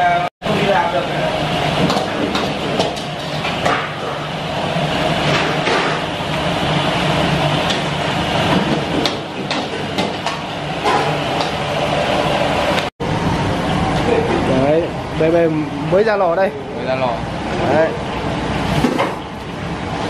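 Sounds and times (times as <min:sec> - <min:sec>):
gas burners and extractor roar: 0:00.0 - 0:20.0
metal utensils clanking on pans: 0:01.8 - 0:04.3, 0:08.6 - 0:11.6.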